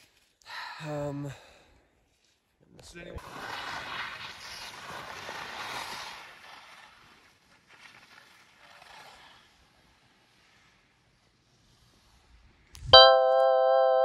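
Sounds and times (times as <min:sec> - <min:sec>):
ski scrapes: 0:03.2 - 0:12.6
skis hissing through snow: 0:03.2 - 0:12.7.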